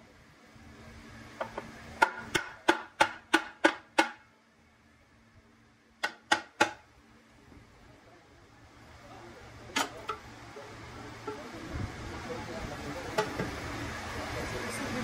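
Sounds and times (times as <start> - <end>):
hammer striking metal: 6.0 - 6.8.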